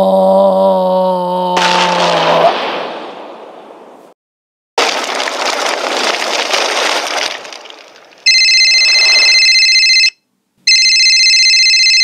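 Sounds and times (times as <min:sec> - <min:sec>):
telephone ringing: 0:08.3 - 0:12.0.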